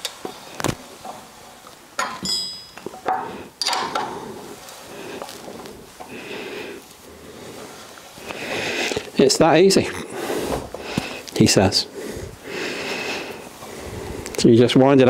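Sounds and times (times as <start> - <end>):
wrench clinking on metal: 2.0 - 4.1
tool handling noise: 2.0 - 6.1.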